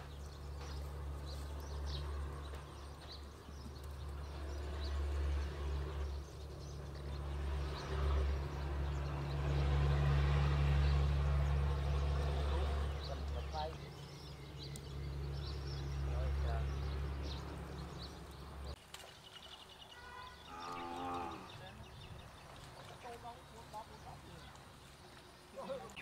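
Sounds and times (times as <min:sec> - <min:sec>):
small engine droning: 0:00.0 - 0:18.8.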